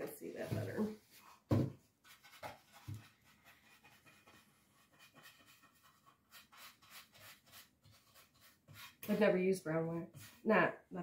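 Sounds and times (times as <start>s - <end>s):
soft knock: 1.5s - 1.8s.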